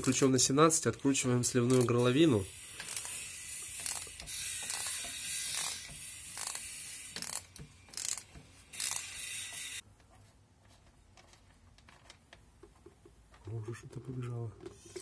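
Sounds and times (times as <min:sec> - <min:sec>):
ratchet wrench clicking: 0:01.6 - 0:09.8.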